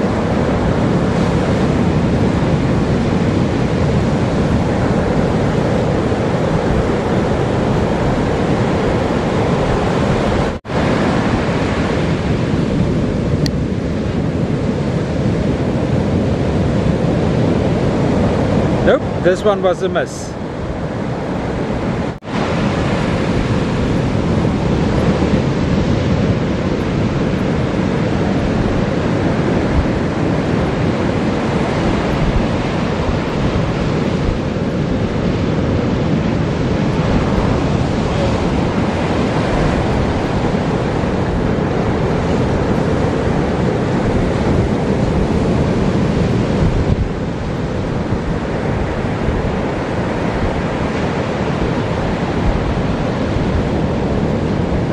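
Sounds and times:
ocean waves on beach: 0.0s - 54.9s.

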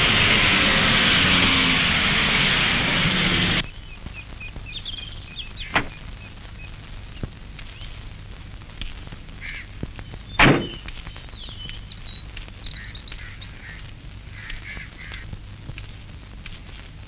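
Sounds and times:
car driving on dirt road: 0.0s - 3.6s
birds chirping: 0.0s - 8.2s, 9.3s - 15.3s
sharp click: 5.7s - 6.0s, 10.4s - 11.0s.

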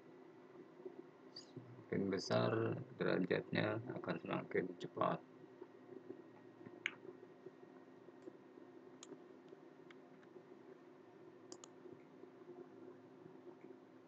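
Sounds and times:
faint low hum: 0.0s - 14.0s
computer mouse clicks: 9.0s - 10.3s, 11.5s - 11.8s.

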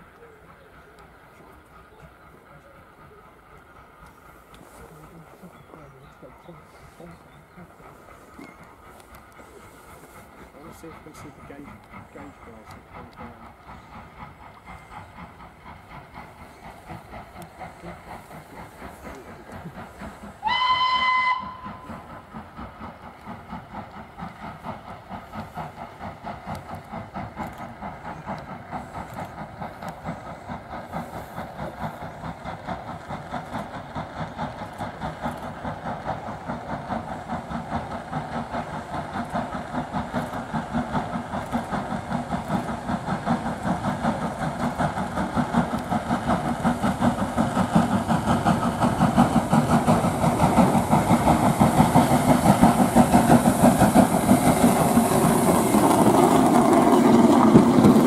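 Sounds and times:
locomotive exhaust beats: 0.0s - 58.0s
steam locomotive whistle: 20.4s - 21.9s.

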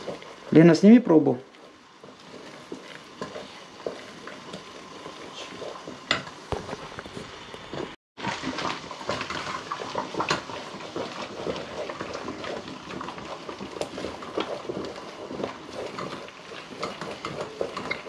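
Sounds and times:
spoon scraping a metal pot: 15.9s - 18.0s.

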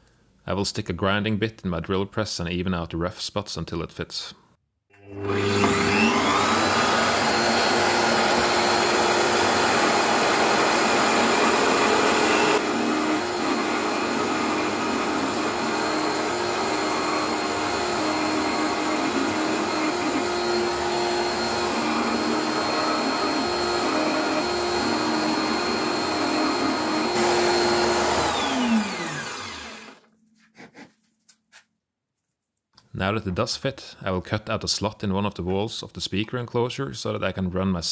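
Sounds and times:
drill press motor whining: 5.0s - 30.0s.

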